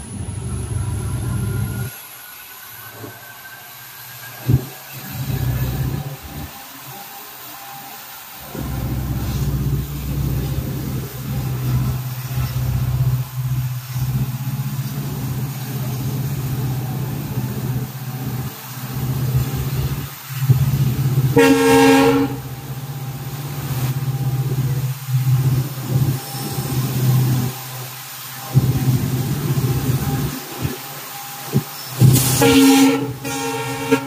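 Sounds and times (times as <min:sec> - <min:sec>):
train rumbling hum: 0:00.0 - 0:34.0
train horn: 0:21.2 - 0:22.6, 0:32.1 - 0:34.0.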